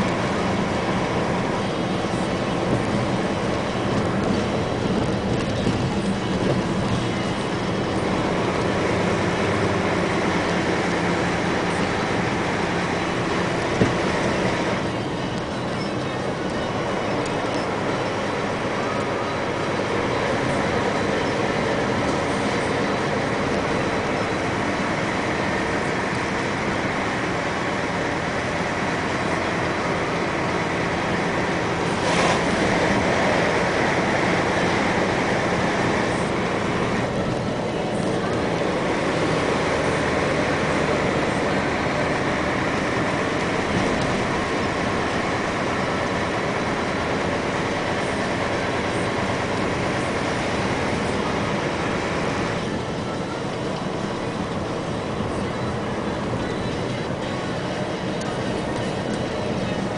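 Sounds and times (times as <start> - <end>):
bus engine and road noise: 0.0 - 59.9.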